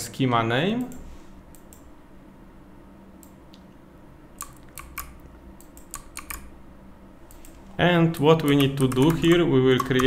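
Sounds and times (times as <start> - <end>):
low steady hum: 0.0 - 10.0
keyboard keystrokes: 4.4 - 6.5, 7.3 - 10.0.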